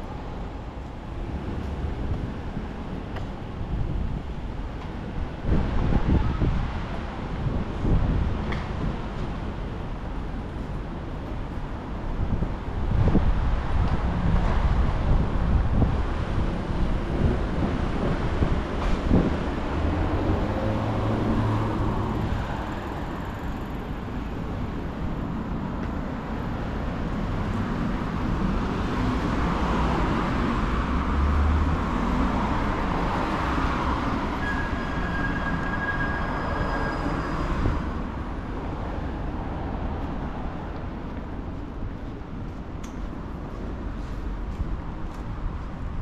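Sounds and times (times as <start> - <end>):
passing vehicle rushing: 16.5 - 25.4.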